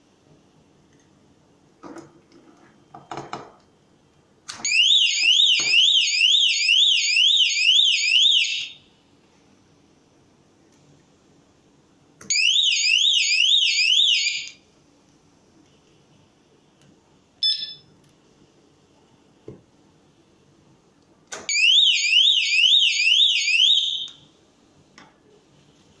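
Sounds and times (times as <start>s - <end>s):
electronic alarm siren whooping: 12.3s - 14.5s, 21.5s - 24.2s.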